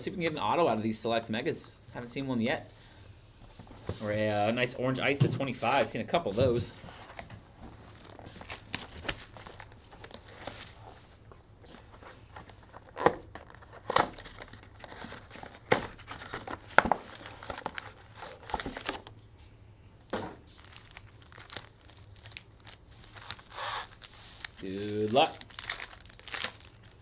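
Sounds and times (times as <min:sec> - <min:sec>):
foil packs crinkling: 0:07.1 - 0:11.2, 0:12.2 - 0:19.1, 0:20.5 - 0:27.0.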